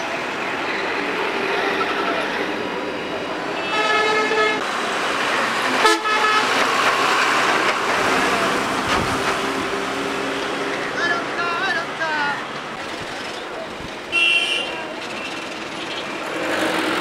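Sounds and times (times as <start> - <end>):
road traffic: 0.0 - 17.0
vehicle horn blaring: 3.6 - 4.6, 5.8 - 6.6, 14.1 - 14.8
truck engine passing: 4.6 - 12.0.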